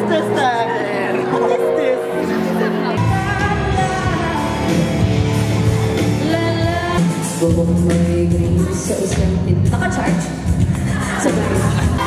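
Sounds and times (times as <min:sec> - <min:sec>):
backing music with bass line: 0:00.0 - 0:12.0
woman singing pop song: 0:02.8 - 0:05.0, 0:06.0 - 0:12.0.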